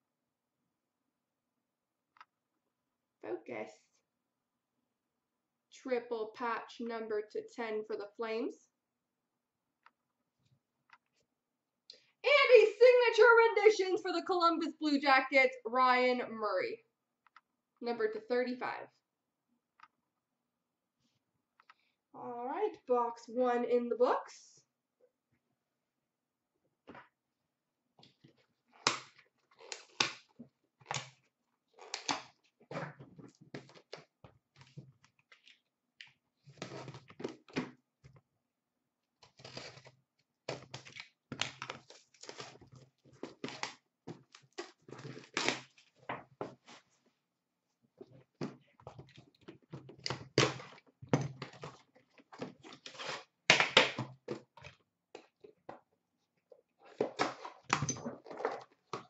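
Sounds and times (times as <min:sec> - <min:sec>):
plastic wrapping tearing and crinkling: 0:39.3 - 0:46.0.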